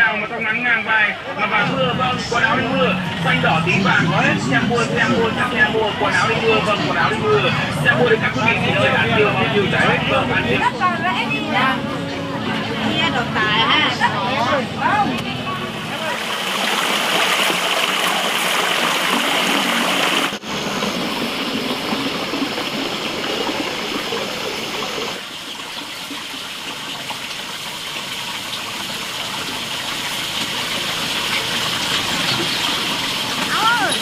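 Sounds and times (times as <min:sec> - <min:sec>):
water pouring into stream: 0:15.9 - 0:34.0.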